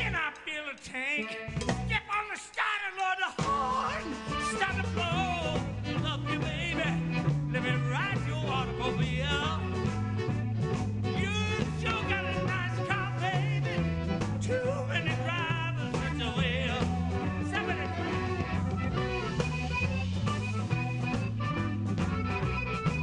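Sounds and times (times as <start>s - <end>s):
man singing with vibrato: 0.0s - 10.3s, 11.0s - 18.8s
electric guitar: 1.1s - 2.1s, 3.4s - 23.0s
bass line: 1.5s - 2.0s, 3.4s - 23.0s.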